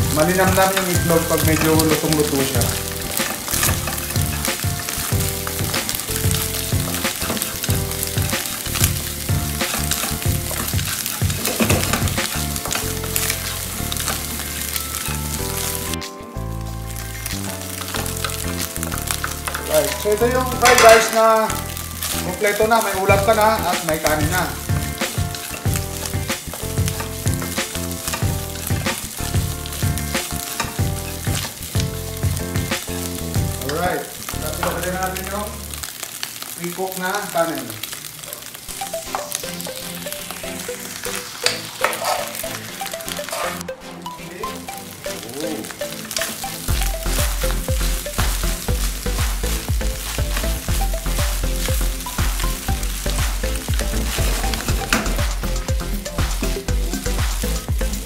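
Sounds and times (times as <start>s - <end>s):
spatula tapping pan: 0.0s - 16.0s, 16.9s - 35.2s, 44.6s - 58.0s
background music: 0.0s - 58.0s
egg sizzling in frying pan: 0.0s - 58.0s
wooden spatula scraping pan: 41.3s - 43.7s.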